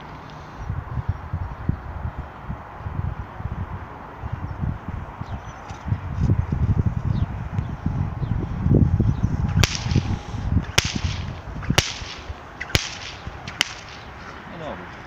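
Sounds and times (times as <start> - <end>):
low rumble on microphone: 0.0 - 12.4
whip cracking: 9.5 - 14.1.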